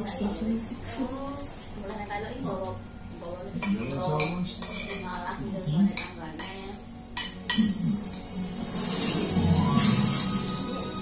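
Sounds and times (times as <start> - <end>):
cutlery clinking on plates: 3.6 - 5.1.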